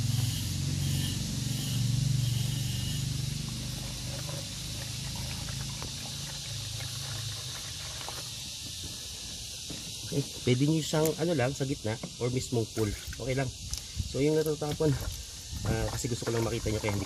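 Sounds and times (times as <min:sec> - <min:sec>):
water pouring from a jug: 0:03.3 - 0:08.7, 0:12.8 - 0:17.0
steady high hiss: 0:08.2 - 0:15.6.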